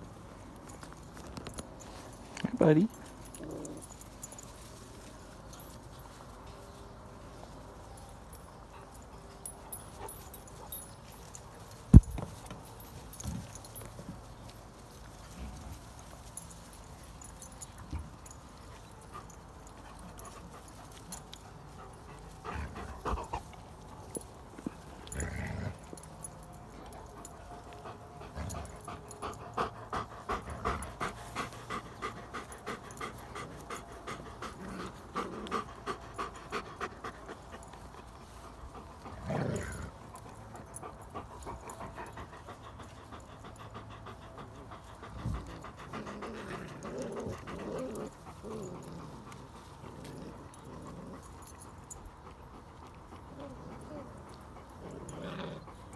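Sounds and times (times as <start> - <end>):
thumps and rustles: 11.8 - 14.2
dog panting: 17.6 - 55.9.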